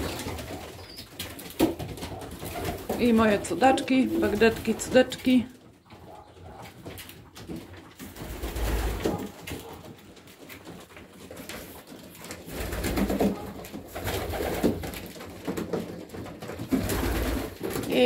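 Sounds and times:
pigeons cooing: 0:00.0 - 0:10.2.

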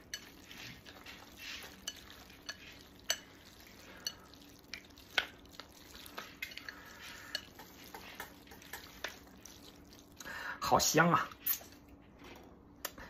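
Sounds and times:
chopsticks stirring wet noodles: 0:00.0 - 0:10.4
chopsticks clicking against bowl: 0:06.1 - 0:09.2.

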